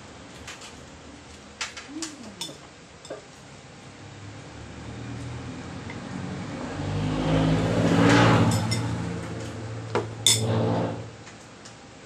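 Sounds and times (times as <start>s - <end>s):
vehicle passing by: 4.0s - 11.2s.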